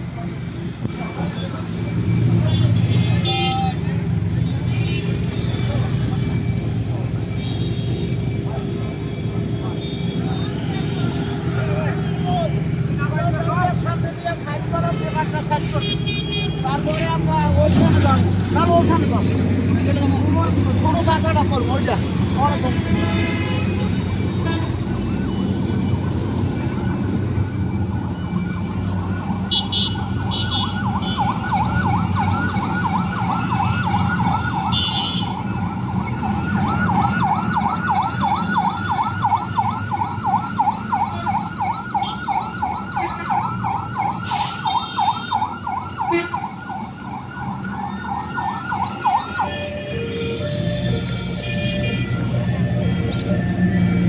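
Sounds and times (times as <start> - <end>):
street traffic rumble: 0.0 - 54.0
electronic yelp siren wailing: 18.4 - 54.0.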